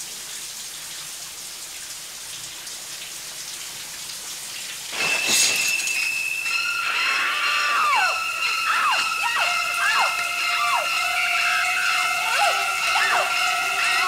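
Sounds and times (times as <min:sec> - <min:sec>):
shower spray hissing: 0:04.9 - 0:14.0
shrieking violin stabs: 0:04.9 - 0:14.0.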